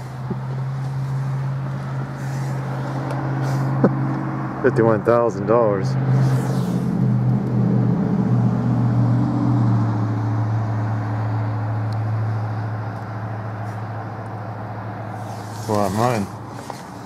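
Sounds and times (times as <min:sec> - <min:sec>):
vehicle engine running: 0:00.0 - 0:17.0.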